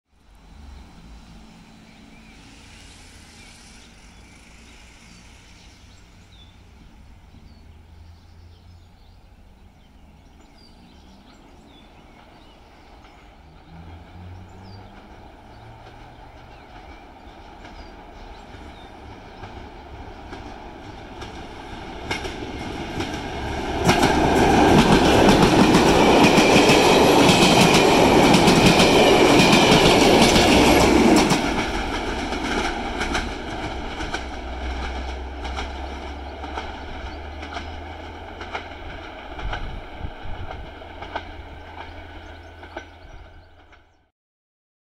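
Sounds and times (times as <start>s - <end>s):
train passing: 0.1s - 44.1s
wheels clacking on rail joints: 10.3s - 44.0s.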